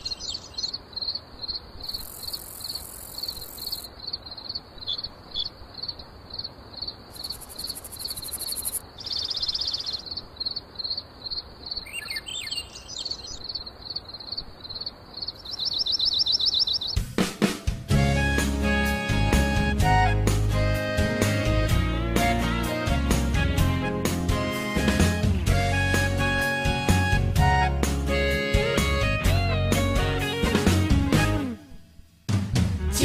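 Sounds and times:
buzzing insect trills: 6.8 - 9.9
gliding bird chirps: 7.2 - 17.0
music: 17.0 - 33.0.

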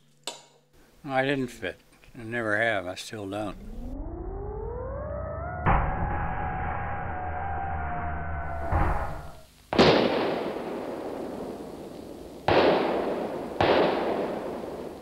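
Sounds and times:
loud bangs like blasts: 8.6 - 15.0.

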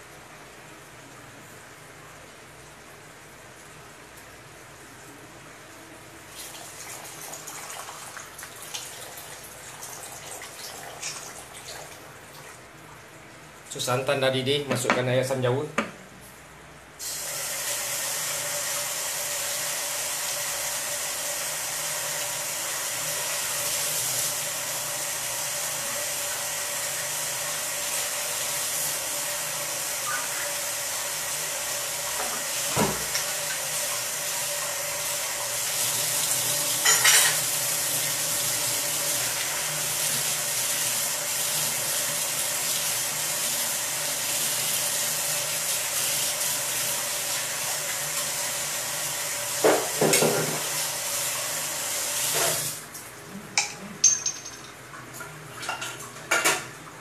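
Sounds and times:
sauce simmering and sizzling: 17.0 - 52.9.

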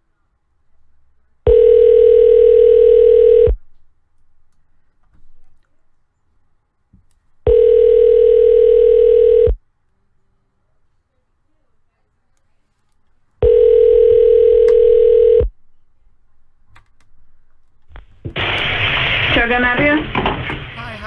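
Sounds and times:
telephone ringback tone: 1.5 - 3.6, 7.5 - 9.6, 13.4 - 15.5.

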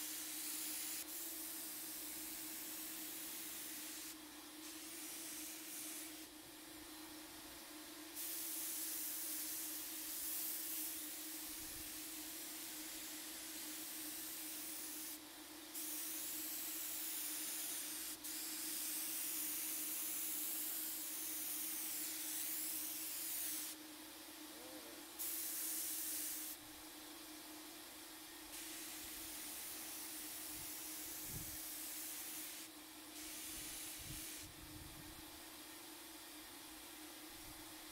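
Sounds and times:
paint spray gun hissing: 0.0 - 6.3, 8.2 - 23.8, 25.2 - 26.6, 28.5 - 34.5.

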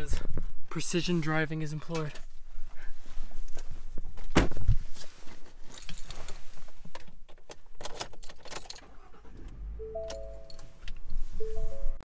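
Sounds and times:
keys jangling: 5.6 - 6.8, 7.5 - 9.0.

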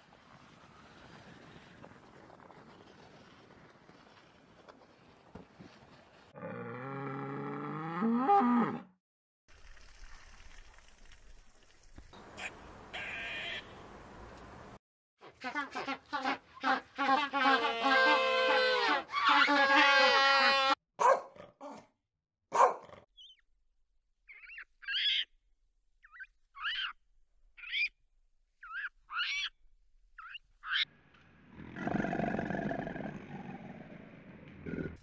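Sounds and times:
penguins trumpeting: 15.4 - 20.8
monkeys chirping: 24.3 - 25.3, 26.0 - 26.9.

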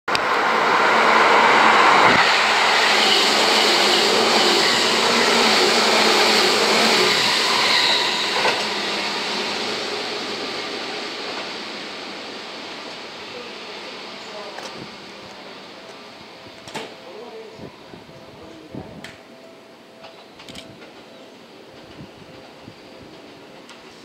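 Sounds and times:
electric train passing: 0.1 - 24.0.

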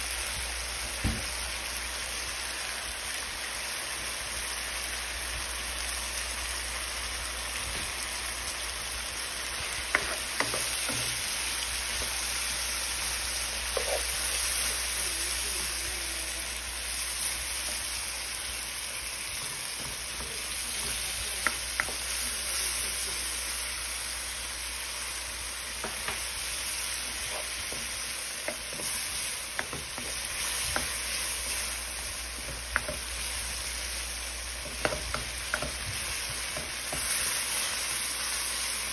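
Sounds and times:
seafood sizzling in a hot pan: 0.0 - 38.9.

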